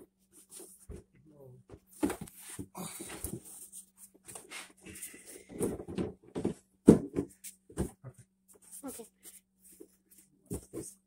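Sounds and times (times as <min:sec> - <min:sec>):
plastic bed rails knocking and scraping: 0:05.4 - 0:08.2.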